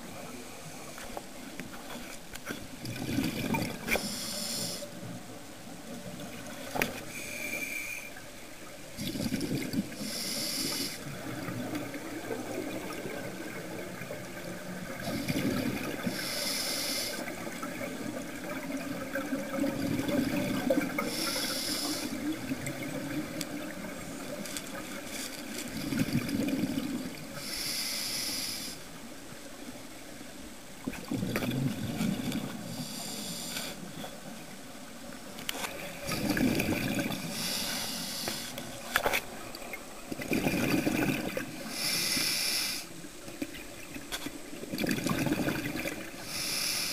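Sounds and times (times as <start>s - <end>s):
diver breathing through regulator: 3.9s - 4.9s, 10.0s - 11.0s, 15.0s - 17.3s, 21.0s - 22.2s, 27.4s - 28.8s, 32.7s - 33.9s, 37.2s - 38.6s, 41.7s - 42.9s, 46.2s - 46.9s.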